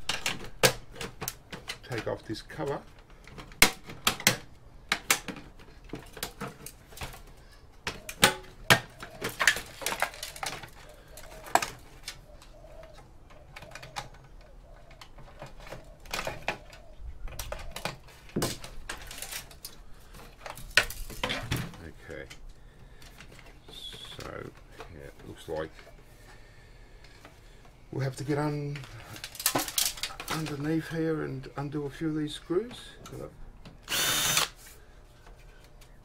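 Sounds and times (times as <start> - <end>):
computer case parts clicking and knocking: 0.0 - 7.2.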